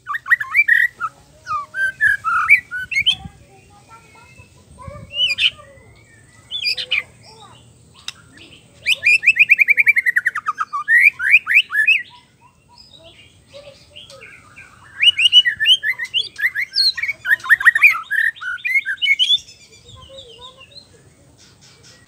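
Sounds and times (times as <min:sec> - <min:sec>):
bird singing trills: 0:00.0 - 0:22.0.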